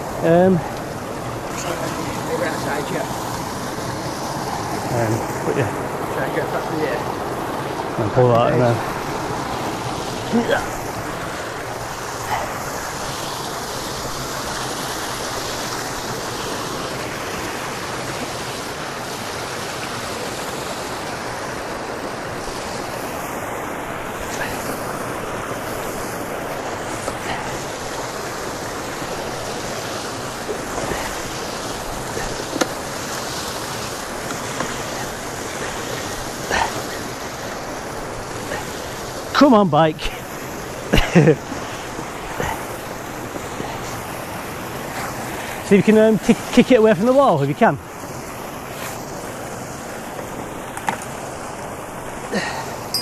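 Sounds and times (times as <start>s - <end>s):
water gushing from a pipe: 0.0s - 53.0s.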